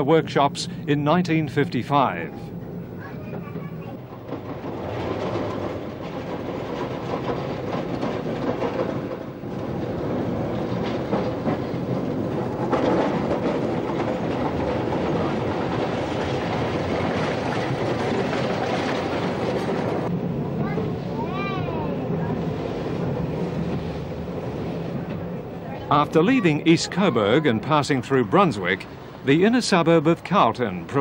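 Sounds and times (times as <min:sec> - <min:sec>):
tram rumble: 0:00.0 - 0:31.0
tram wheels clicking on rails: 0:00.0 - 0:31.0.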